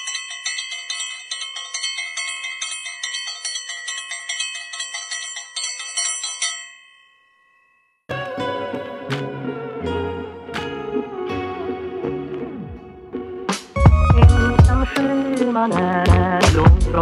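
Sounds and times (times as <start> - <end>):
temple bell ringing: 0.0 - 7.9
guitar music: 8.1 - 17.0.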